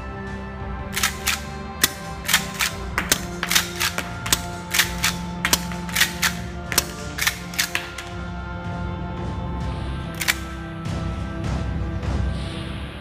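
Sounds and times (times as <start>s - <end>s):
background music: 0.0s - 13.0s
shotgun lever action clacks: 1.0s - 8.2s, 10.2s - 10.6s.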